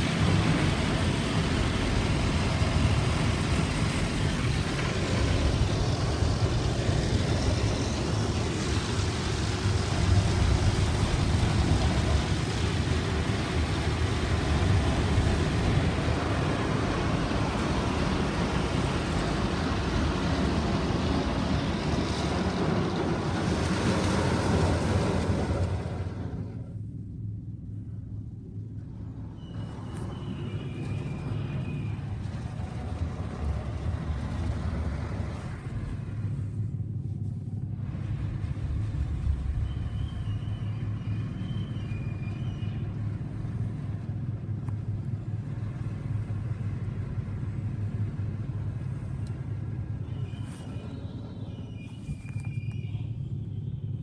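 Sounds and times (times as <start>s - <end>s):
hiss of machinery and water: 0.0s - 26.6s, 37.7s - 50.4s
car wash machinery rumble: 0.0s - 54.0s
faint high squeaks: 29.3s - 32.1s, 50.0s - 54.0s.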